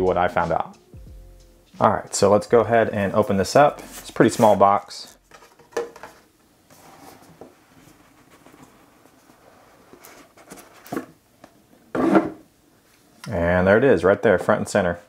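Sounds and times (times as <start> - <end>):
cardboard lid rubbing and sliding: 3.8 - 5.2.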